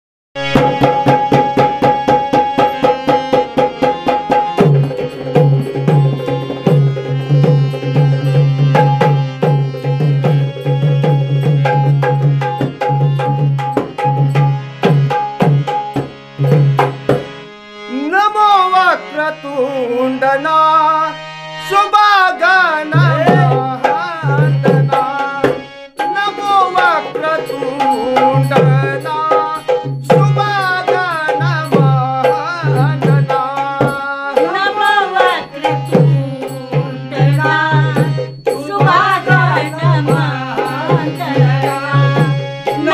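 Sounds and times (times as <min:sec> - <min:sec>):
harmonium chords: 0:00.4 - 0:42.9
hand drum fast rhythm: 0:00.5 - 0:17.3, 0:22.9 - 0:42.9
person singing: 0:17.8 - 0:42.9.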